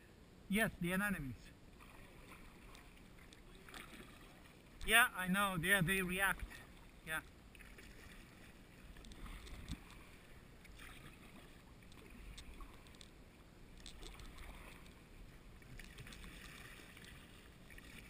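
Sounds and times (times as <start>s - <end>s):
kayak paddle splashing: 1.7s - 4.8s, 6.1s - 18.0s.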